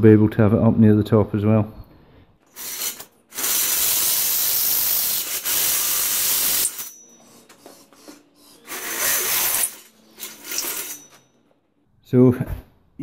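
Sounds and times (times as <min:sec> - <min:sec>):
cordless drill boring metal: 0:02.5 - 0:11.2.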